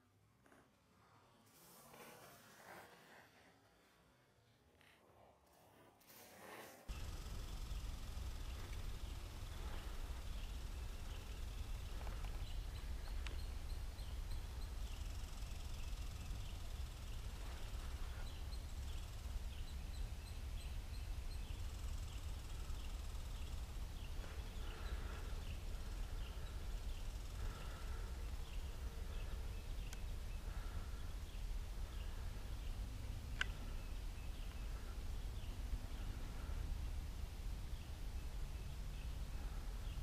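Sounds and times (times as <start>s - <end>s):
small bird chirping: 6.9s - 36.6s
lower bird calls: 6.9s - 36.7s.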